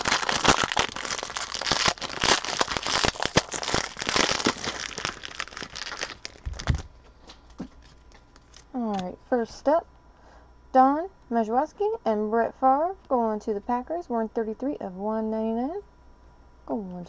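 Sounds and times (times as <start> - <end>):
foil wrapper crinkling: 0.0 - 8.8.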